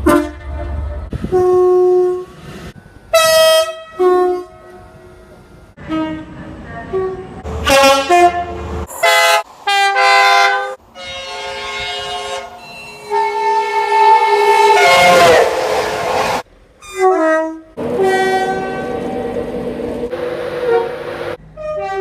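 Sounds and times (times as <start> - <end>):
two-tone train horns: 0.0 - 2.4, 3.1 - 5.2, 5.8 - 19.4, 20.1 - 22.0
train rushing past: 7.4 - 16.5, 17.8 - 21.6.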